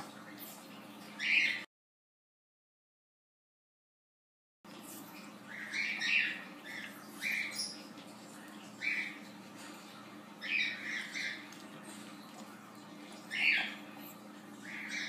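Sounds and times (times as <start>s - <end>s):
faint steady hum: 4.7s - 15.0s.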